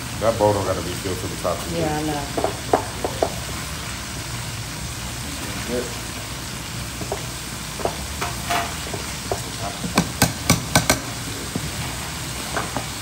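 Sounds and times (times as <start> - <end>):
utensils clinking against dishes: 7.0 - 11.2.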